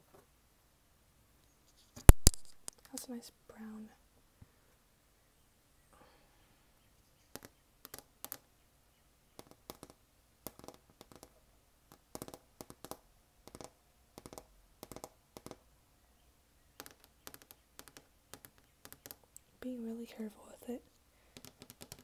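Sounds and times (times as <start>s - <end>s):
fingernails tapping on vinyl record: 7.3s - 8.4s, 9.4s - 15.6s, 16.8s - 19.3s, 21.4s - 22.0s.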